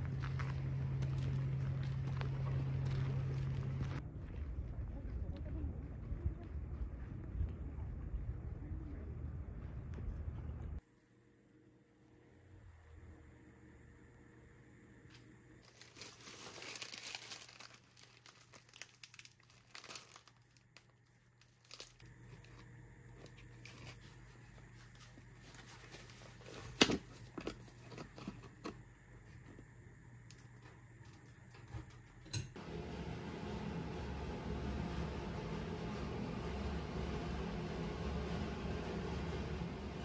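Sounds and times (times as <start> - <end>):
packaging crinkling and rustling: 15.6 - 28.8.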